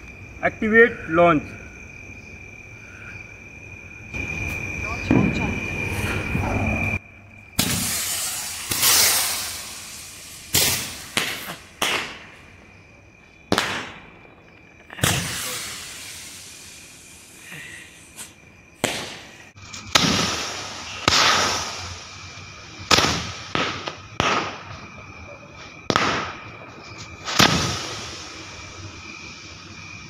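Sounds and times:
firecracker rockets bursting: 5.0s - 6.1s, 7.6s - 12.6s, 13.4s - 30.0s.

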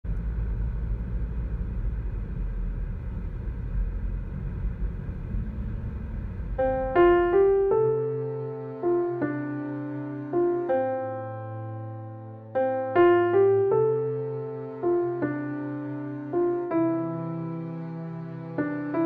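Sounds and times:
car road noise rumble: 0.0s - 7.7s
solo piano music: 6.3s - 19.0s.

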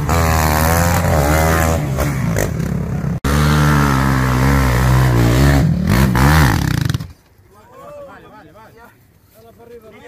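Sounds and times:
quad engine revving: 0.0s - 7.1s.

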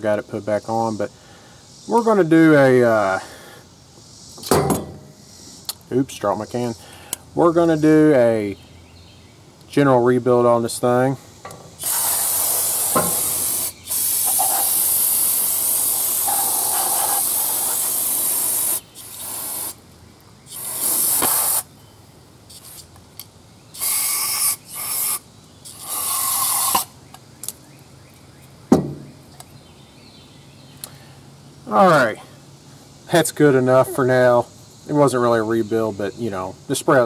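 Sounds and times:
aerosol spray hissing: 11.8s - 19.8s, 20.5s - 21.7s, 23.8s - 26.9s.

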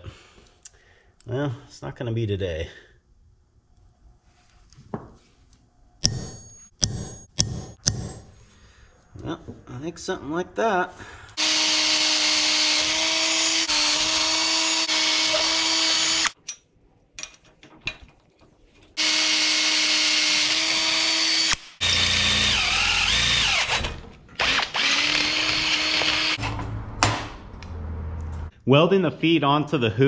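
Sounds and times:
hammer drill boring through steel: 11.4s - 16.4s, 19.0s - 26.4s.

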